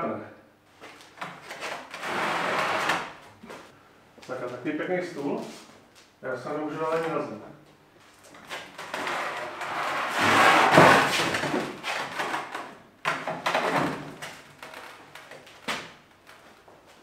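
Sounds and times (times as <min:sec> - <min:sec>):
steel table scraping on wood: 0:09.0 - 0:11.2.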